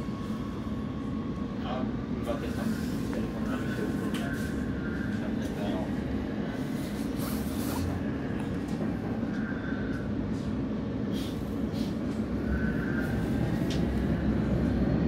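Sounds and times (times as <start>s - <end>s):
train wheels rumbling on track: 0.0s - 15.0s.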